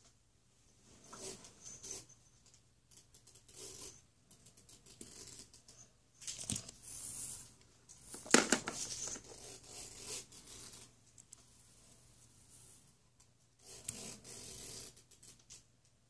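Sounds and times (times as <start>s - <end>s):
plastic toys rustling and clicking: 2.4s - 7.0s, 7.9s - 9.4s.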